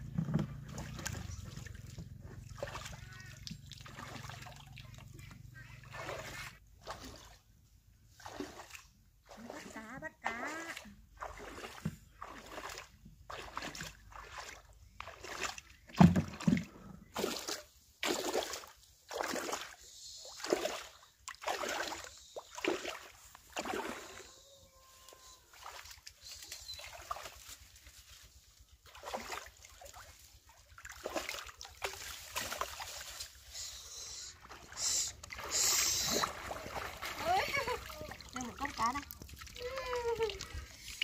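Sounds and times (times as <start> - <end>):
pond water splashing and sloshing: 0.0 - 41.0.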